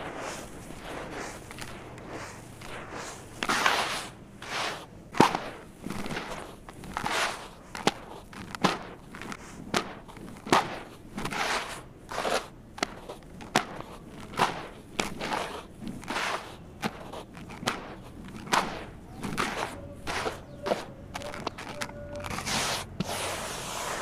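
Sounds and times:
sand mix pouring into plastic basin: 0.0 - 8.2, 22.2 - 24.0.

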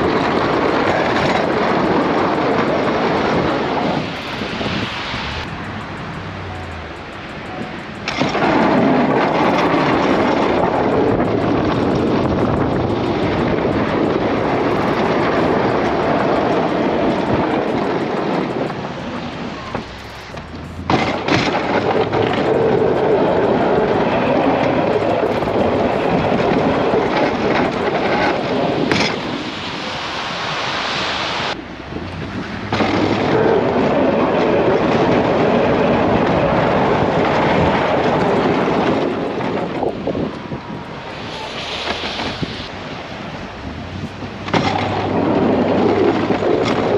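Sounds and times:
plow blade scraping slush: 41.0 - 46.9.

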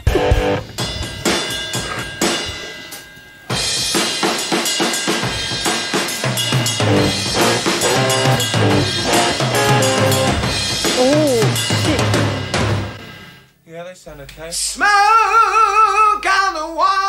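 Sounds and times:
rock band playing: 0.0 - 2.7, 3.5 - 13.4
drum kit beating steady rhythm: 0.0 - 13.5
bass line: 6.8 - 13.0.

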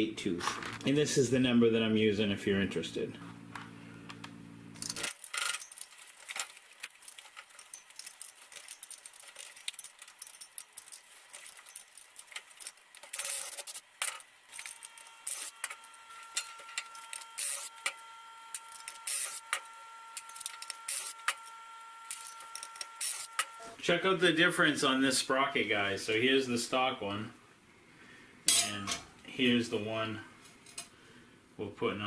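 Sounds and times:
faint steady whine: 0.0 - 31.8
metal tools and bolts clinking: 4.8 - 15.6, 16.3 - 17.7, 28.5 - 29.1.

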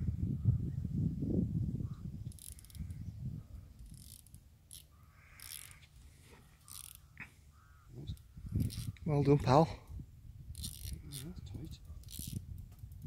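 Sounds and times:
fishing reel clicks and rustles: 2.3 - 3.0, 3.8 - 5.9, 6.5 - 7.1, 8.1 - 9.1, 10.5 - 13.0.

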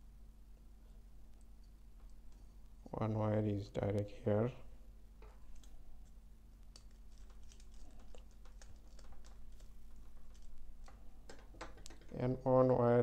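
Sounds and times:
wires and circuit board rustling: 5.1 - 12.8.

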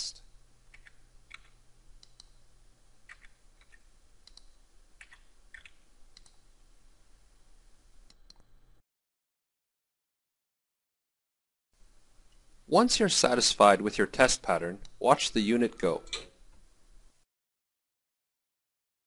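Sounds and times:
low steady hum: 0.0 - 8.8, 11.8 - 17.2
mouse and keyboard clicks: 0.7 - 2.4, 3.1 - 6.4.

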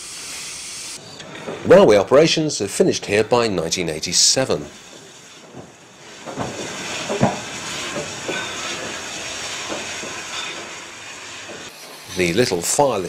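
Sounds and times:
steam hissing: 0.0 - 13.0
locomotive knocks and clanks: 1.2 - 3.5, 4.3 - 11.8.

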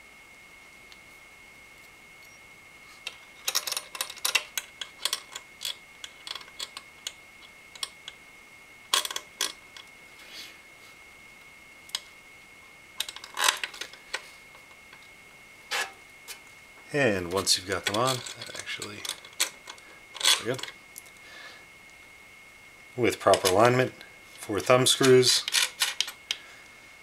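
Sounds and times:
faint steady high tone: 0.0 - 3.2
metal brackets clicking and rattling: 17.4 - 20.8.

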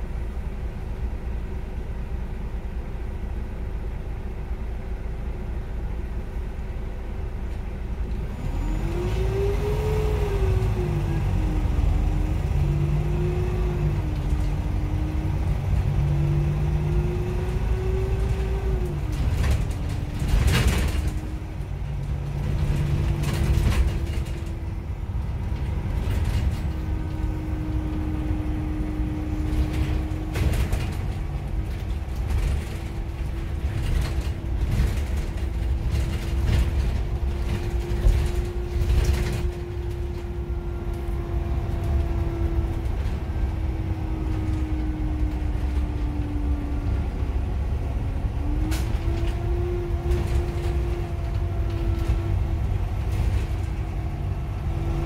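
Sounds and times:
bus engine rumble: 0.0 - 55.0
drivetrain whine: 7.5 - 55.0
knocks and rattles: 17.2 - 40.4.

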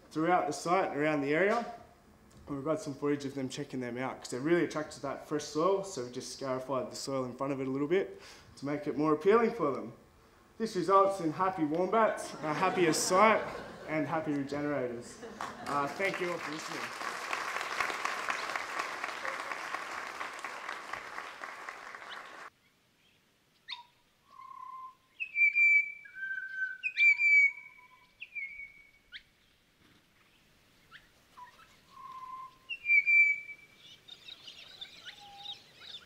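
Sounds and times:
audience applause: 15.2 - 22.5
bird singing whistled notes: 23.0 - 29.4, 30.9 - 36.0.

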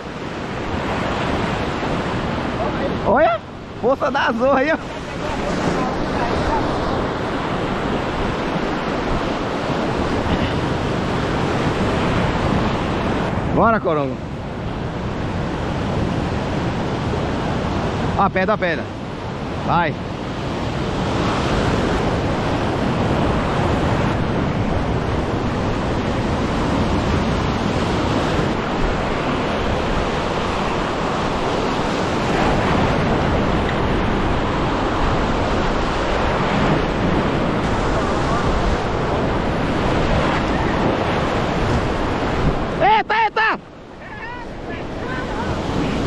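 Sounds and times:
surf washing over rocks: 0.0 - 46.0
wind buffeting microphone: 19.1 - 42.8.

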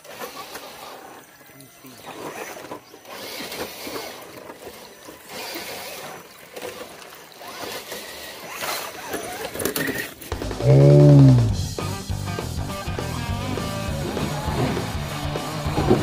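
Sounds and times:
water splashing and sloshing: 0.0 - 10.4.

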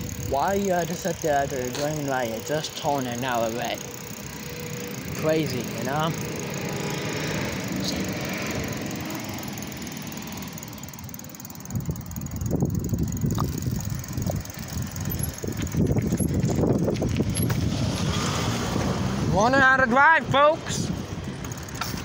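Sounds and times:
wind buffeting microphone: 0.0 - 3.0, 10.2 - 19.6.

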